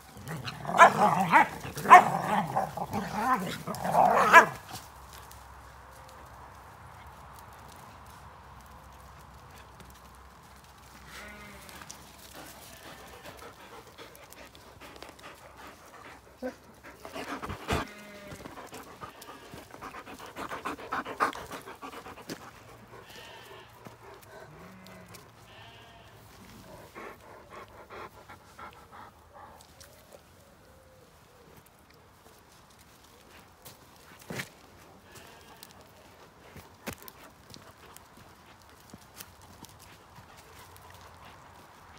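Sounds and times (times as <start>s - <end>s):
paws scuffing on gravel: 0.0s - 27.8s, 31.5s - 41.9s
dogs panting: 11.7s - 25.4s, 26.4s - 30.2s, 36.0s - 41.9s.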